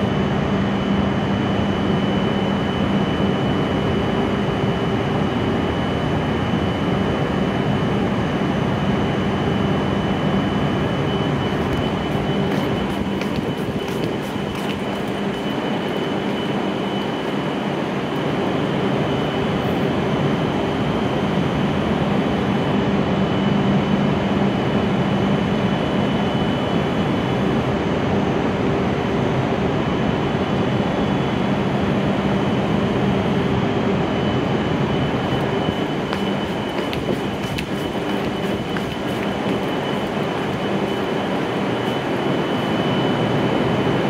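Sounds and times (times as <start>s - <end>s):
train equipment humming: 9.1s - 22.5s, 33.2s - 44.0s.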